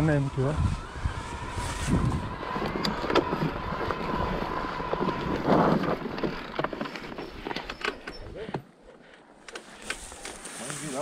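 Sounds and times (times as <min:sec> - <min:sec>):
wind rumble on microphone: 0:00.0 - 0:06.8
bike clattering over bumps: 0:02.2 - 0:08.2.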